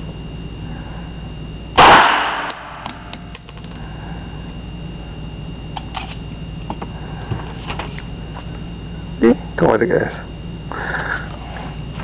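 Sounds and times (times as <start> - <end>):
pistol shot ringing indoors: 1.8 - 3.2.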